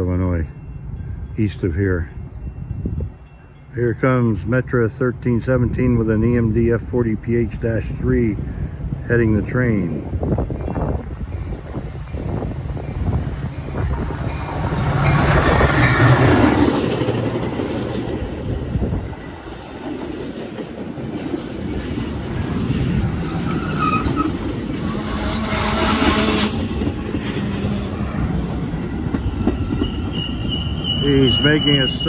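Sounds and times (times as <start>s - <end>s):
diesel locomotive engine rumble: 0.0s - 32.0s
train wheels clattering on rail: 10.5s - 32.0s
train brakes squealing: 22.9s - 28.3s, 28.9s - 32.0s.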